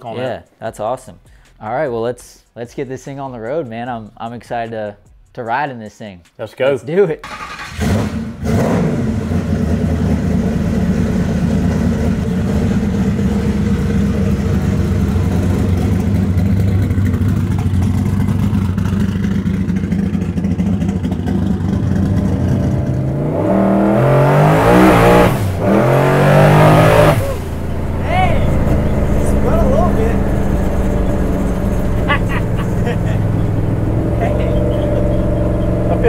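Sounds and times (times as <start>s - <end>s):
car engine idling and accelerating: 7.3s - 36.0s.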